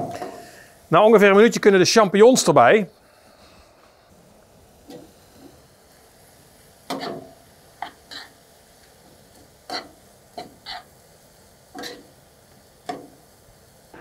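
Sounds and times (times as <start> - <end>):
meat frying in a pan: 4.1 - 14.0
utensil scraping against a pan: 6.9 - 8.4, 9.4 - 10.9, 11.8 - 12.1.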